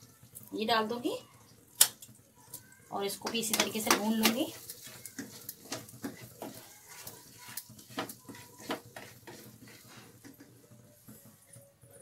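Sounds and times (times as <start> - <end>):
light sizzle: 0.0 - 12.0
spatula scraping a pan: 3.2 - 10.6.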